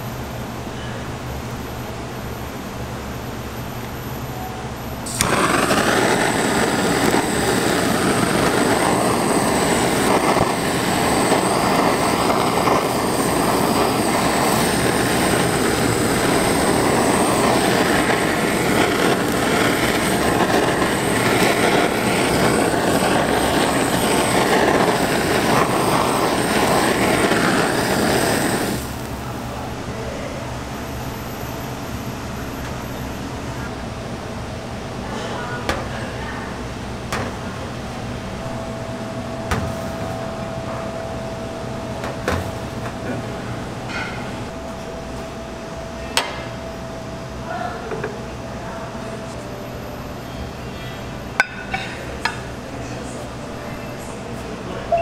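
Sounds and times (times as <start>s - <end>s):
blowtorch flame hissing: 5.0s - 29.8s, 49.8s - 54.6s.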